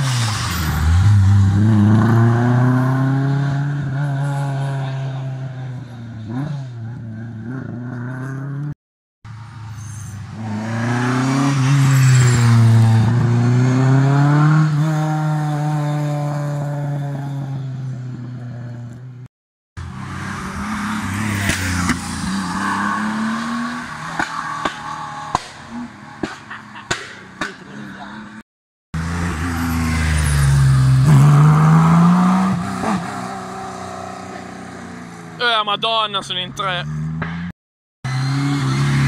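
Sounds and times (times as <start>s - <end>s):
rally car engines revving: 0.0s - 8.7s, 10.2s - 18.8s, 19.8s - 28.4s, 29.0s - 35.7s, 38.1s - 39.0s.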